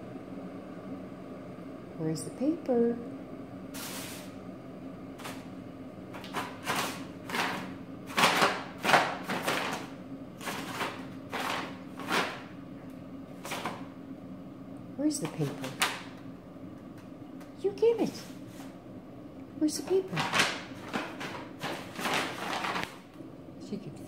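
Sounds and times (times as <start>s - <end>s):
paper bag crinkling and rustling: 6.2s - 12.5s, 19.9s - 23.1s.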